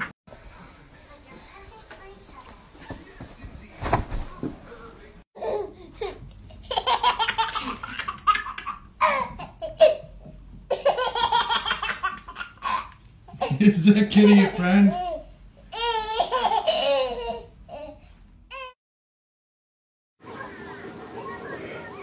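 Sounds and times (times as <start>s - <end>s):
baby laughing: 5.4s - 18.7s.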